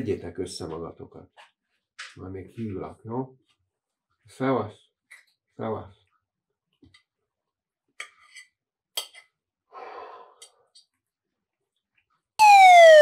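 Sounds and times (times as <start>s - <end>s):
soft breath: 9.7s - 10.8s
loud tone falling in pitch: 12.4s - 13.0s.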